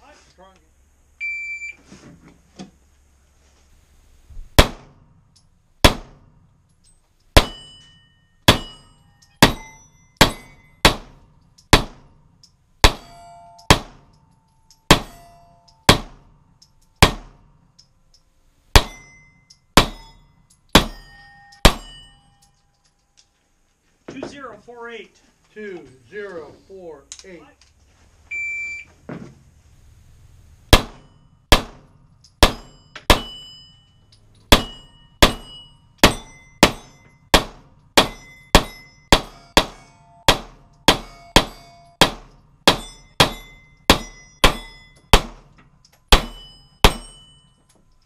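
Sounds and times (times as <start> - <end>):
pistol shots: 4.6 - 5.1, 5.8 - 6.4, 7.4 - 7.7, 8.5 - 12.2, 12.8 - 14.1, 14.9 - 15.2, 15.9 - 16.4, 17.0 - 17.5, 20.8 - 22.1, 30.7 - 33.4, 34.5 - 47.2
steel plate ringing: 6.8 - 17.1, 18.8 - 22.9, 30.8 - 45.2, 46.0 - 47.8
shot timer beep: 28.3 - 28.9.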